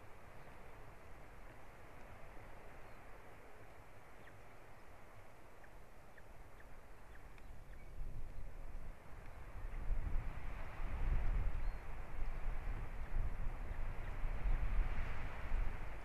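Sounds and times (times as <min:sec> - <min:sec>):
songbirds chirping: 0:00.0 - 0:10.2, 0:11.3 - 0:15.0
low rumbling wind gusts: 0:00.0 - 0:16.0
wind hiss on microphone: 0:06.2 - 0:16.0.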